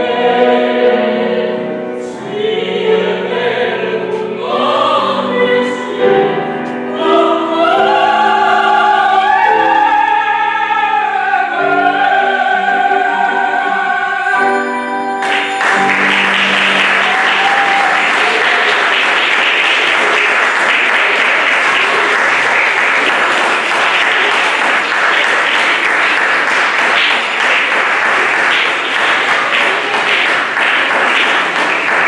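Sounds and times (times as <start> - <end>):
audience applauding: 15.2 - 32.0.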